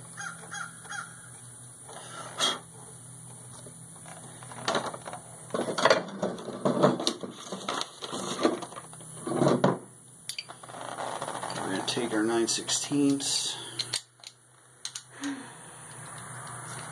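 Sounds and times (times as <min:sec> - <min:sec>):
clatter and scraping of hand tools: 0:03.5 - 0:12.0.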